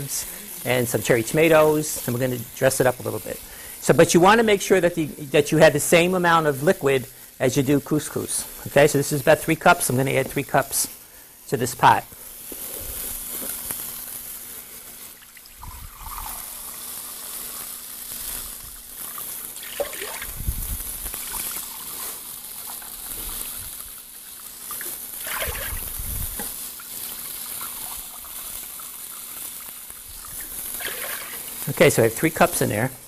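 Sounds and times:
liquid pouring into glass cup: 0:15.2 - 0:16.8, 0:19.6 - 0:20.4, 0:25.2 - 0:26.0, 0:29.9 - 0:31.7.

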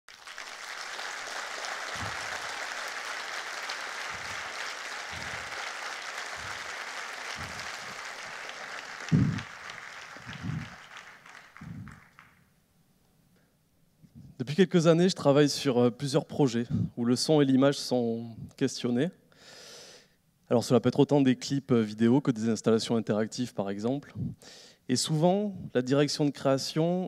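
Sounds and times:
audience applause: 0:00.1 - 0:12.4
low thumps: 0:05.1 - 0:05.6, 0:07.4 - 0:08.0.

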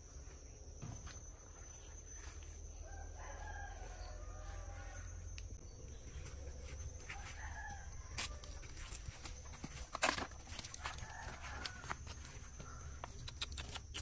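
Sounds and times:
rooster crowing: 0:02.7 - 0:05.4, 0:06.9 - 0:08.8, 0:10.6 - 0:13.0.

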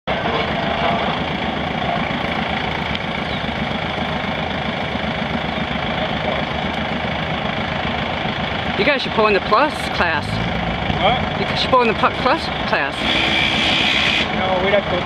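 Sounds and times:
tractor engine idling: 0:00.0 - 0:15.0.

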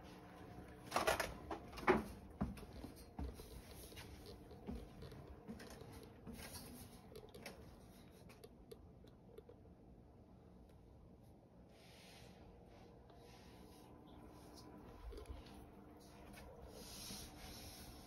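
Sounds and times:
footsteps on wooden stairs: 0:01.6 - 0:06.5.

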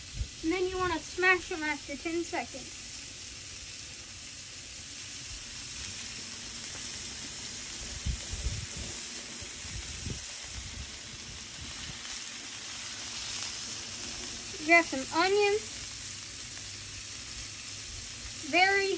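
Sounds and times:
meat sizzling on a griddle: 0:00.0 - 0:18.9.

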